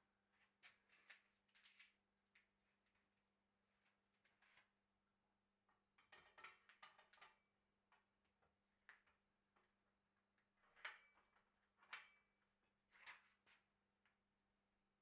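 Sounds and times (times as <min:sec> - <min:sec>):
faint metallic clicks and clinks: 0:00.8 - 0:02.0.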